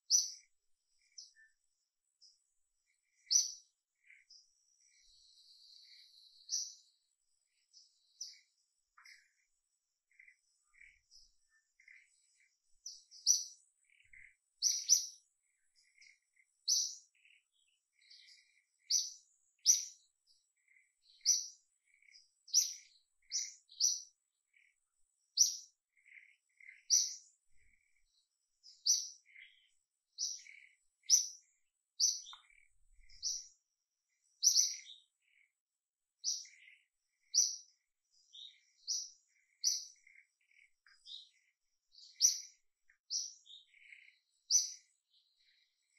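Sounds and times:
faint lower bird chirps: 0:00.0 - 0:45.9
high bird chirps: 0:10.1 - 0:20.1, 0:20.7 - 0:24.7, 0:25.3 - 0:33.6, 0:34.4 - 0:35.5, 0:36.2 - 0:45.9.

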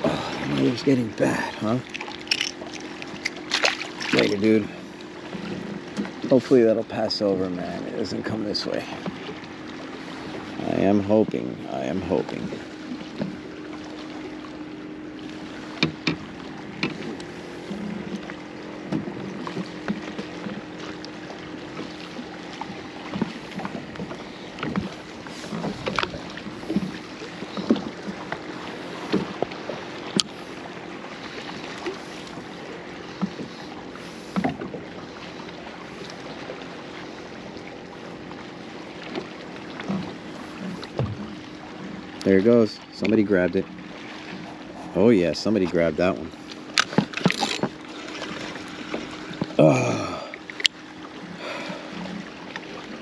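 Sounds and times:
steady low hum: 0:00.0 - 0:53.0
water lapping against hull: 0:00.0 - 0:53.0
small knocks and taps: 0:15.8 - 0:16.2.

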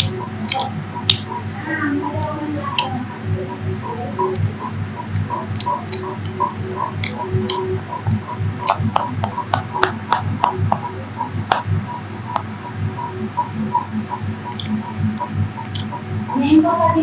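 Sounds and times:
faint regular ticking: 0:00.0 - 0:17.0
steady hum: 0:00.0 - 0:17.0.

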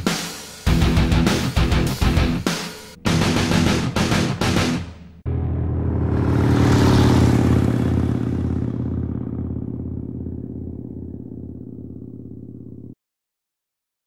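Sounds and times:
motorcycle engine pulsing: 0:05.7 - 0:13.0.

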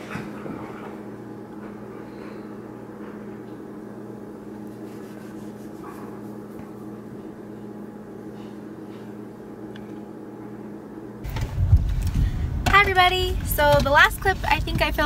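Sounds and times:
steady low hum: 0:00.0 - 0:15.0
hand stroking dog fur: 0:04.6 - 0:07.0.

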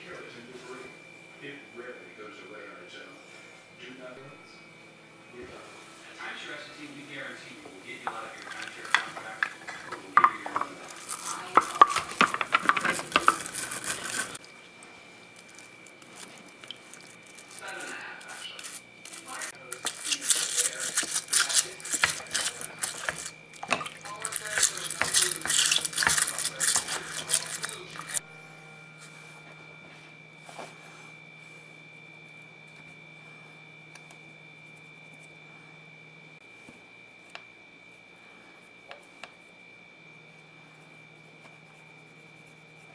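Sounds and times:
steady high-pitched whine: 0:00.0 - 0:42.9
brush scrubbing metal: 0:08.4 - 0:14.4, 0:17.2 - 0:28.2
low hum: 0:21.0 - 0:36.4.

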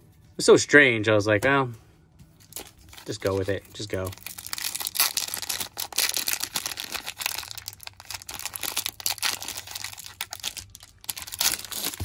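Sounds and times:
foil wrapper crinkling and tearing: 0:02.4 - 0:12.0.

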